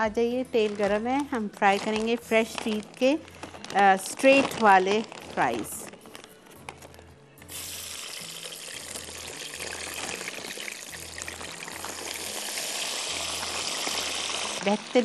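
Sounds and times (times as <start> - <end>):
fries sizzling in hot oil: 7.5 - 15.0.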